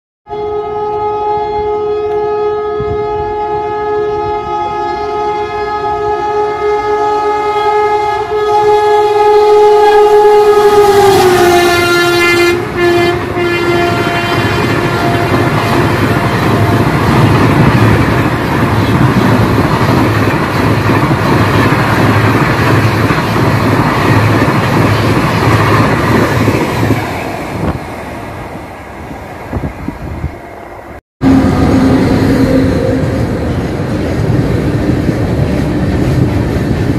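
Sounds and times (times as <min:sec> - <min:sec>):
locomotive horn blast: 0:00.3 - 0:17.3, 0:31.2 - 0:33.9
train rushing with wheel clatter: 0:02.0 - 0:36.9.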